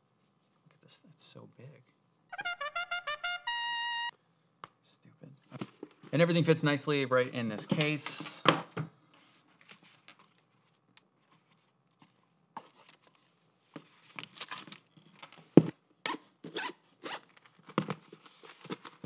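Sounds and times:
zipper pulled on a case: 16.1 - 17.3.

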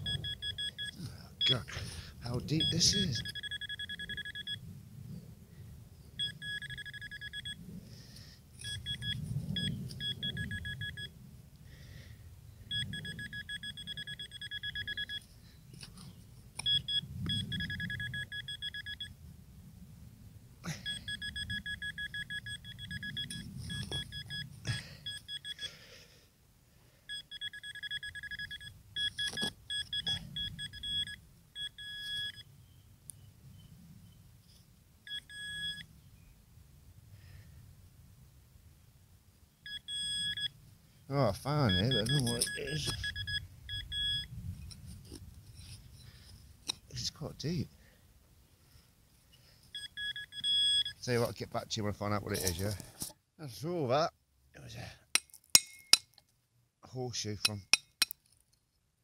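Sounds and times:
metal detector pulsing beep: 0.0 - 1.7, 2.3 - 4.6, 6.2 - 7.6, 8.6 - 11.1, 12.7 - 15.2, 16.6 - 19.2, 20.8 - 25.7, 27.1 - 32.8, 35.1 - 35.9, 39.6 - 40.6, 41.5 - 44.3, 49.8 - 51.2
digging in soil: 41.2 - 43.1, 52.2 - 53.2.

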